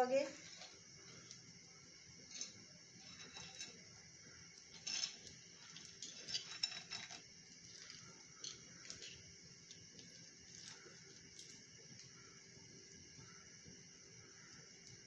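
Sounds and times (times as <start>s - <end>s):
dried food crackling in hands: 4.8s - 12.3s.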